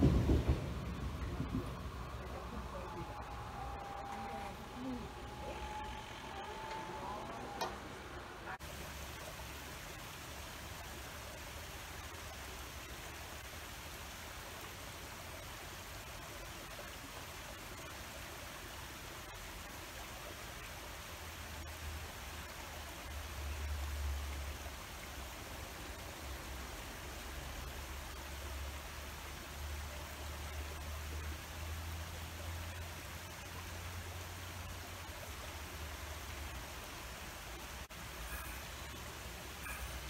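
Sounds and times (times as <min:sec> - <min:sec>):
low rumble: 0:00.0 - 0:08.6
steady rushing outdoor noise: 0:00.0 - 0:40.0.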